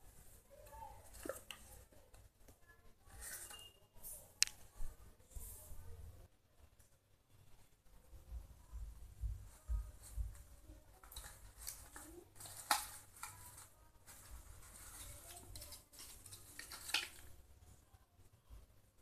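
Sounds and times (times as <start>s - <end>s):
paper and ribbon rustling: 3.0s - 5.7s, 9.4s - 17.5s.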